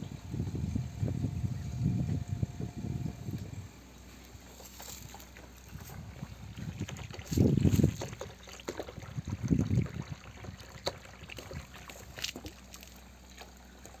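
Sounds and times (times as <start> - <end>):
low rumbles on microphone: 0.0 - 3.8, 4.4 - 12.3
water pouring into a tub: 5.8 - 13.4.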